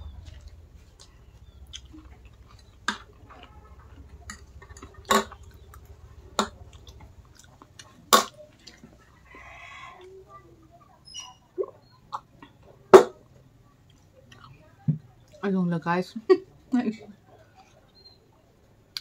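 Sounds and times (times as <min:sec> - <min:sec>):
quiet chewing: 0:00.0 - 0:11.0, 0:13.7 - 0:15.4, 0:17.2 - 0:19.0.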